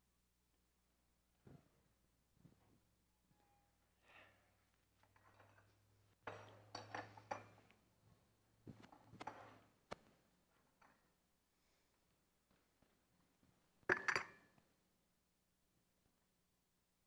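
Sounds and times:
cups and dishes clinking: 0:13.9 - 0:14.5.

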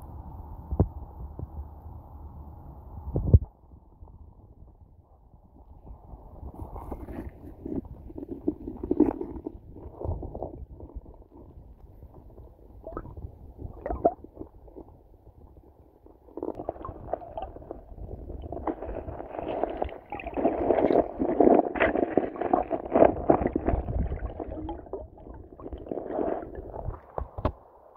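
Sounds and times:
underwater river rumbling: 0:05.9 - 0:27.5.

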